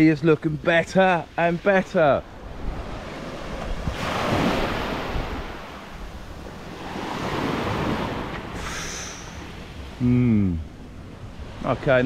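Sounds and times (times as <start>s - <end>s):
small waves washing onto sand: 0.7s - 10.0s.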